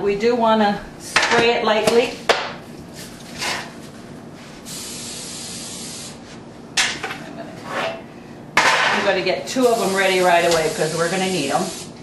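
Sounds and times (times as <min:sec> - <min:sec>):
aerosol spray hissing: 0:04.7 - 0:06.2, 0:09.6 - 0:12.0.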